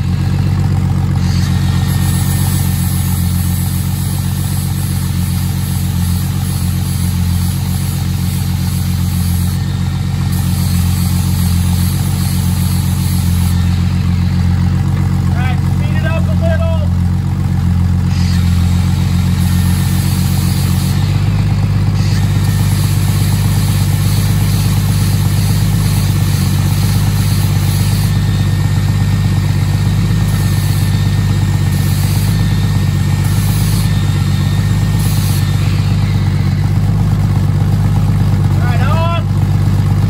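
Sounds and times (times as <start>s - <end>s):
angle grinder cutting metal: 0.0s - 16.8s, 17.6s - 40.0s
car engine idling: 0.0s - 40.0s.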